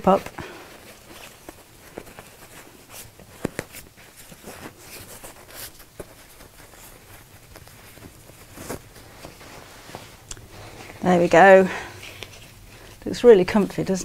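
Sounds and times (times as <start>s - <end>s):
cotton fabric rustling: 0.0s - 14.0s.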